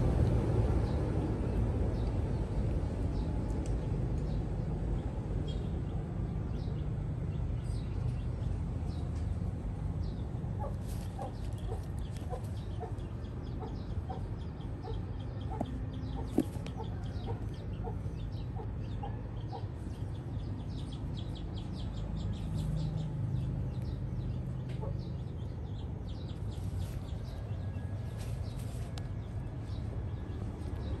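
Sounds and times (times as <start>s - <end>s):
low outdoor rumble: 0.0s - 31.0s
chickens clucking: 10.6s - 20.1s.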